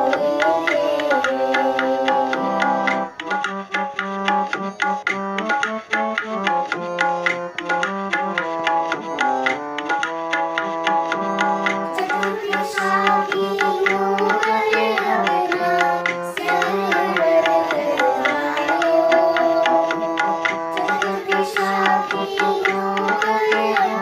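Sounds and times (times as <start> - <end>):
person singing: 0.0 - 3.5, 11.8 - 24.0
harmonium playing: 0.0 - 24.0
tabla strokes: 0.0 - 24.0.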